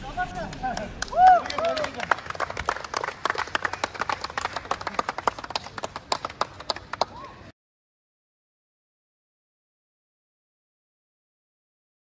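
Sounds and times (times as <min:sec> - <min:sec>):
group of people clapping: 0:00.4 - 0:07.5.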